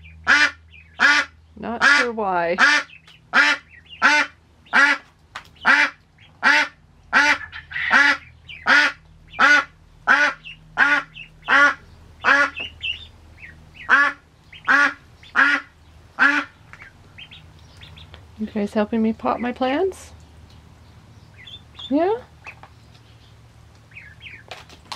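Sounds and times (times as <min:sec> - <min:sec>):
duck quacking loudly: 0:00.2 - 0:05.0, 0:05.6 - 0:13.0, 0:13.8 - 0:16.6.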